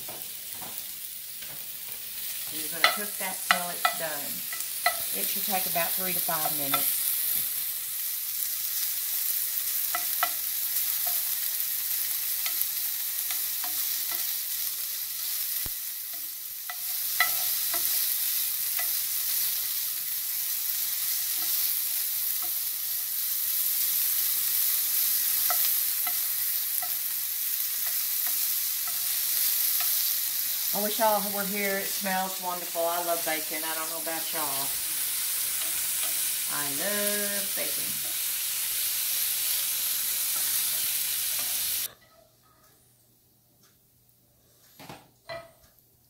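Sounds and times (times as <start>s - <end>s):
bacon sizzling in a pan: 0.0s - 41.9s.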